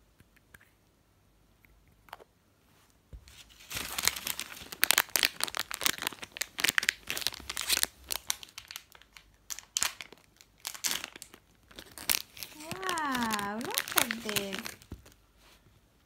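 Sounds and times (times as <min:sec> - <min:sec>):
plastic wrapper crackling: 0:03.3 - 0:15.2.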